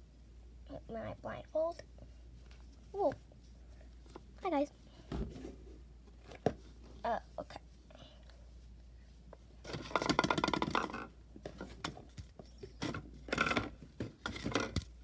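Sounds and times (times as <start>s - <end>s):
plastic containers rustling and scraping: 3.9s - 7.0s, 9.4s - 15.0s
plastic containers knocking: 9.7s - 15.0s.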